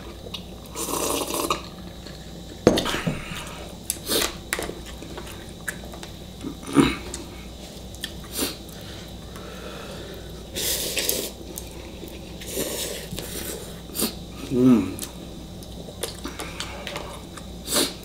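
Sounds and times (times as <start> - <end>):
slurping noodles: 0.7 - 1.7, 10.6 - 11.4, 12.1 - 14.2.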